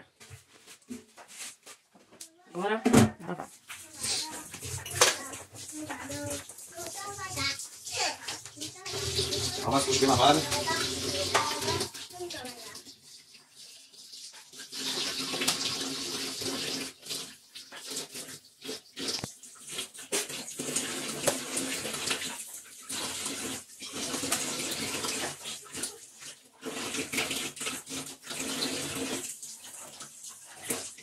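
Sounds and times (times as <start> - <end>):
water splashing on hands: 3.8 - 12.9
tap running into metal sink: 9.2 - 11.9.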